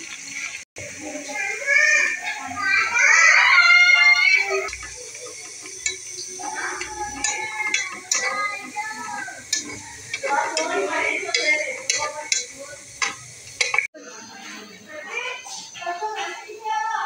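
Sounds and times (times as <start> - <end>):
metal utensils clinking on pots: 3.6 - 13.9.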